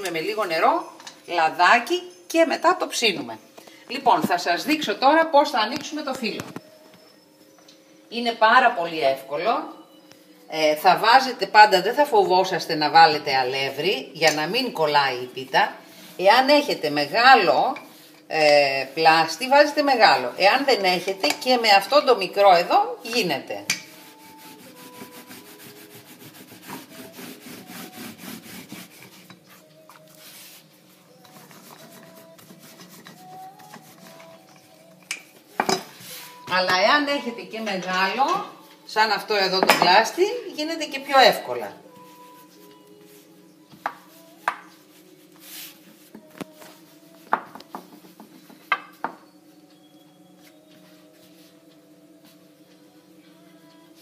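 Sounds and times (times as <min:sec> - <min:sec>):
rolling pin rubbing over dough: 0:18.4 - 0:20.8, 0:23.8 - 0:34.5, 0:36.0 - 0:36.4, 0:42.0 - 0:46.2.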